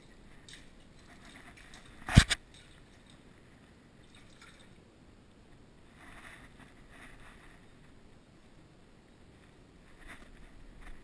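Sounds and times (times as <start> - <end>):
faint dripping water: 0.0 - 4.9.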